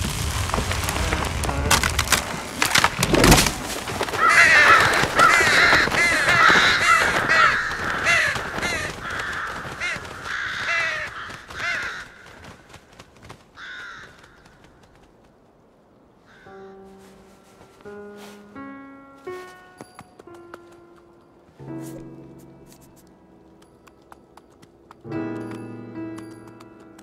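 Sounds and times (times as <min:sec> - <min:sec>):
sharp cracks: 0:00.0 - 0:15.2
crows cawing: 0:03.7 - 0:15.0, 0:16.2 - 0:17.1.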